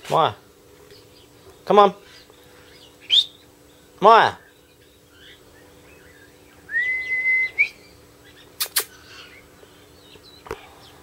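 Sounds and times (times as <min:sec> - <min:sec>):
birds chirping: 0:00.0 - 0:11.0
person whistling loudly: 0:06.7 - 0:07.8
sharp clicks: 0:08.6 - 0:08.9.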